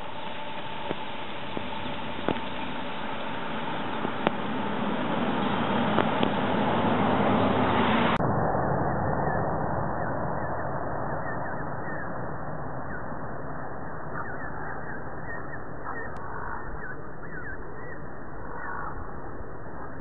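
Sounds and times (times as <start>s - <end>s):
steady background noise: 0.0s - 20.0s
ducklings chirping: 14.1s - 18.0s.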